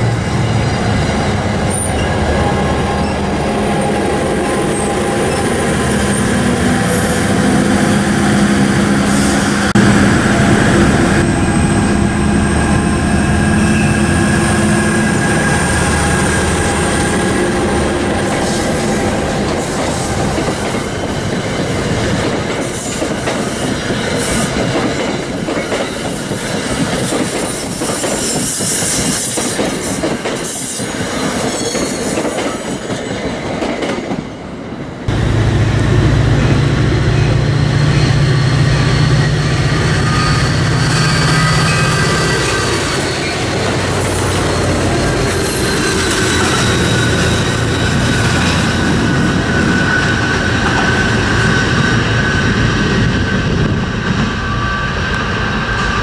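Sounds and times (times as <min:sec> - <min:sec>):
locomotive engine hum: 0:00.0 - 0:22.2, 0:35.0 - 0:56.0
train wheels clicking on rails: 0:03.0 - 0:56.0.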